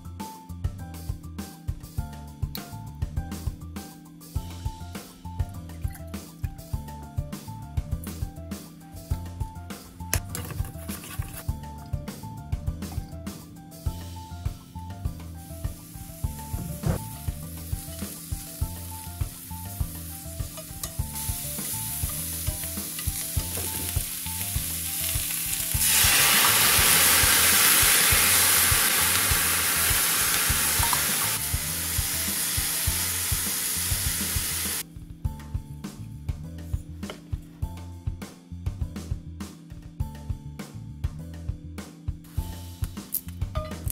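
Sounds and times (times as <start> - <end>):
mushrooms sizzling in hot oil: 15.3 - 34.8.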